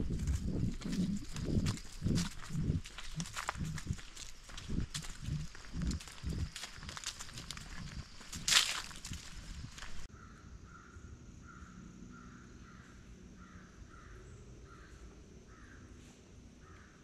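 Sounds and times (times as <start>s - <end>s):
bird calling scratchily: 0.0s - 10.1s.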